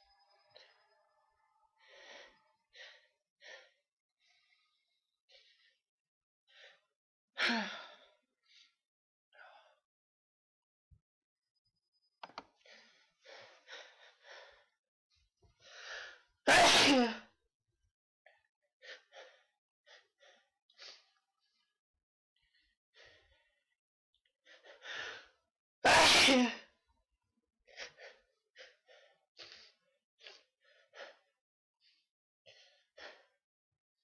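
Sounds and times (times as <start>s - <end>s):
person sneezing: 16.5s - 17.2s, 25.9s - 26.6s.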